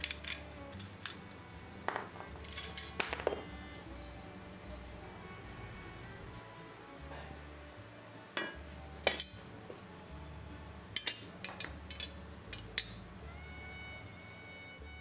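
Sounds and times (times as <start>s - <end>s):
metal tools clinking on workbench: 0.0s - 3.5s, 8.4s - 9.5s, 11.0s - 13.0s
soft background music: 0.0s - 15.0s.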